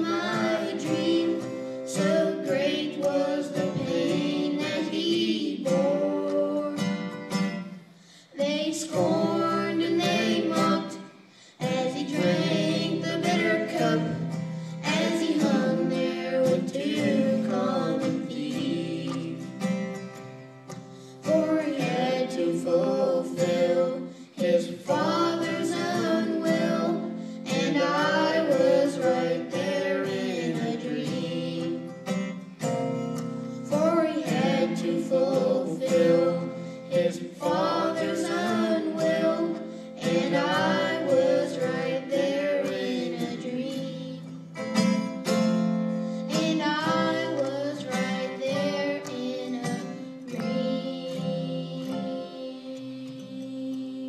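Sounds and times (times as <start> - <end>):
young voices singing: 0.0 - 20.0, 21.0 - 32.3, 33.6 - 44.5, 46.1 - 54.0
strummed acoustic guitar: 0.0 - 54.0.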